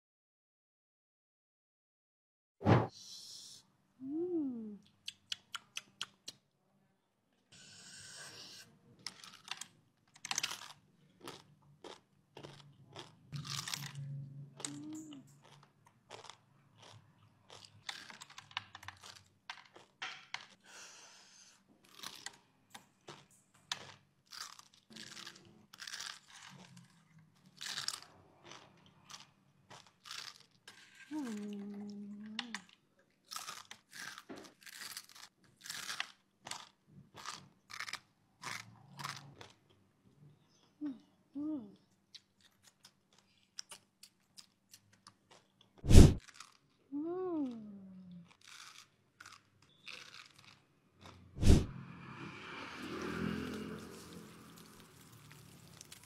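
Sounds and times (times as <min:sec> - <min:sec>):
crunchy noodles chewed: 0:08.0 - 0:20.6, 0:21.8 - 0:39.8, 0:42.1 - 0:46.8, 0:48.1 - 0:51.6, 0:53.0 - 0:56.0.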